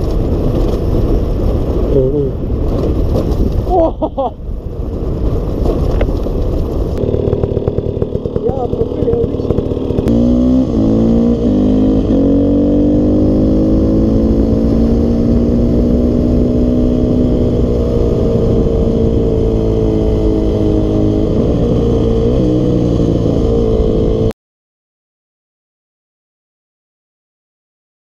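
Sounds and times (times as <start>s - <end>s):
dirt bike engine accelerating: 5.5s - 24.3s.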